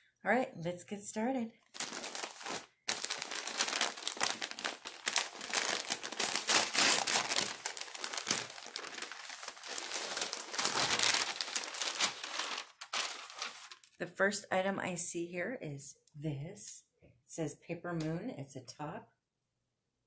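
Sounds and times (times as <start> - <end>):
paper crinkling and rustling: 1.7 - 14.0.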